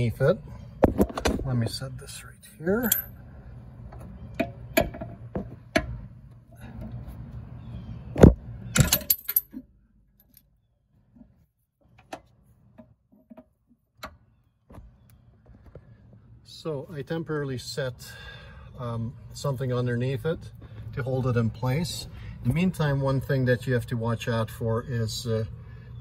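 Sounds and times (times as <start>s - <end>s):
metal tools clinking: 2.8s - 3.2s, 8.8s - 9.6s.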